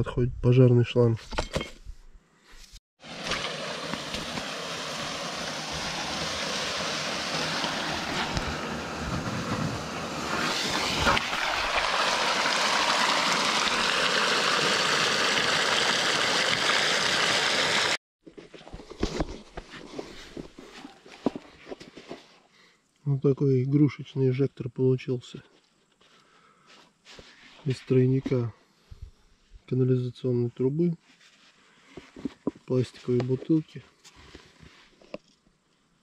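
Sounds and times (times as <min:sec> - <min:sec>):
water rushing from fire hose: 0:03.0 - 0:18.0.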